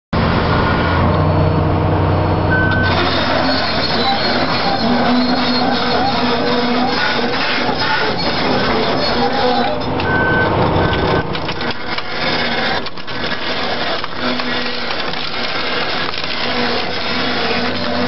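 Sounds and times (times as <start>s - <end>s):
crawler track rolling: 0.2s - 18.0s
bike frame crunching and splintering: 11.3s - 18.0s.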